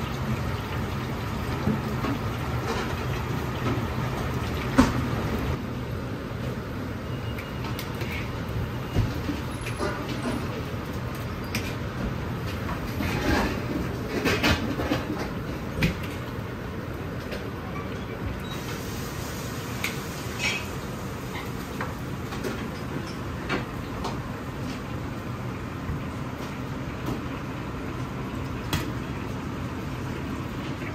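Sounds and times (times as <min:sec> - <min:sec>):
oil sizzling: 0:00.0 - 0:05.6, 0:18.5 - 0:30.9
gas burner roaring: 0:18.3 - 0:30.8.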